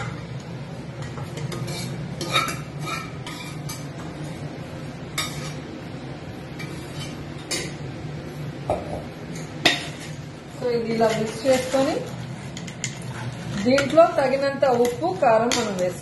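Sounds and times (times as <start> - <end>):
steady low hum: 0.0 - 16.0
spoon scraping metal pot: 1.4 - 3.8.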